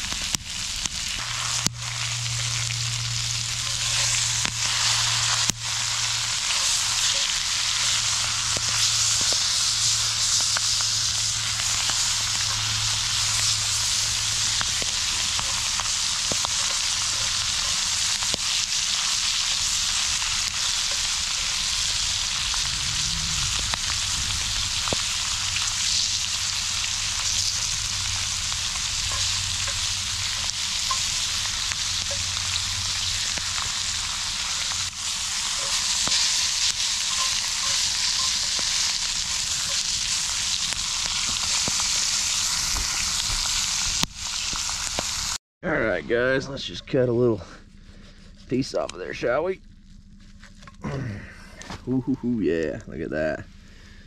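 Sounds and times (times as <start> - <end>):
food sizzling in a skillet: 0.0 - 45.4.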